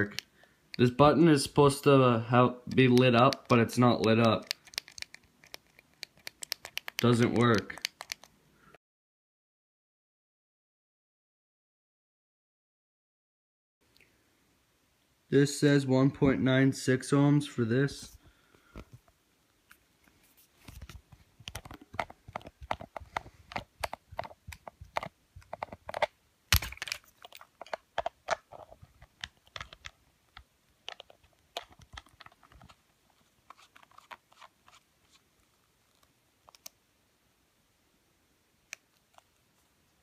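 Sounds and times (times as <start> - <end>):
plastic packaging rummaging: 30.9 - 35.2.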